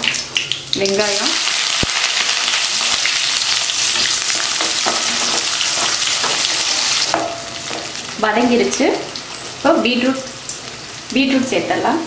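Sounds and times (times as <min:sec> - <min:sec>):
onions sizzling in hot oil: 0:00.0 - 0:12.0
wooden spatula scraping pan: 0:03.8 - 0:08.0.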